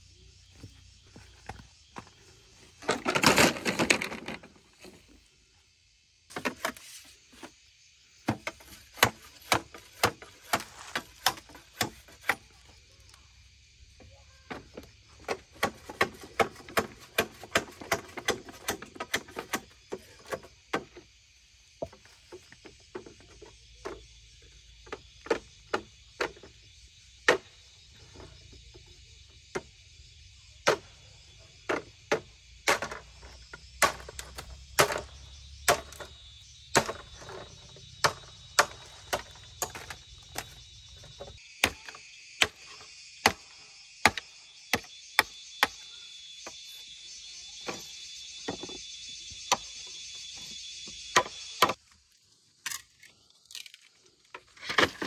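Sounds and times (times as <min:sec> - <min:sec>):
hand tool chopping wood: 0:08.3 - 0:12.5, 0:15.2 - 0:20.9, 0:31.7 - 0:36.1, 0:36.7 - 0:43.4.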